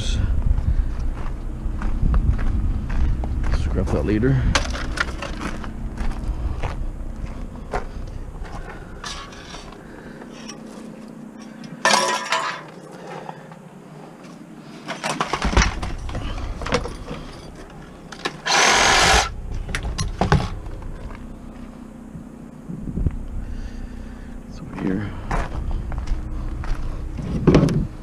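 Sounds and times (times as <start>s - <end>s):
scrap metal knocks and clanks: 11.7s - 12.8s
rattling metal crashes: 11.8s - 12.8s.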